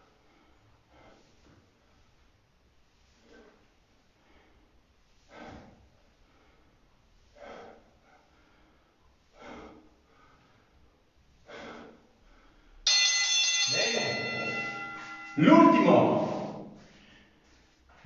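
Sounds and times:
man breathing hard: 0.0 - 2.4, 3.0 - 12.9, 16.2 - 17.9.

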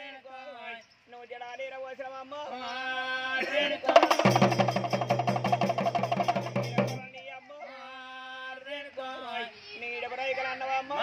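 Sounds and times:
fast drum and cymbal beat: 3.9 - 7.1.

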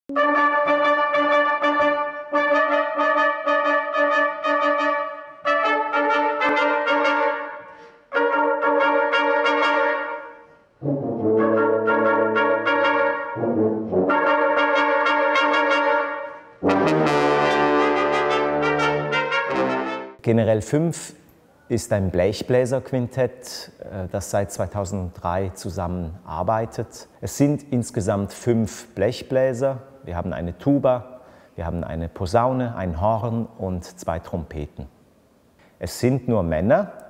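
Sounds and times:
brass quintet playing chords: 0.1 - 20.2.

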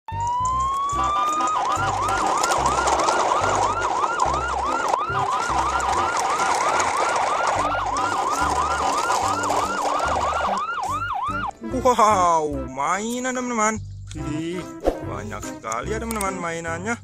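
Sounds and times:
electronic siren wail and yelp: 0.1 - 11.6.

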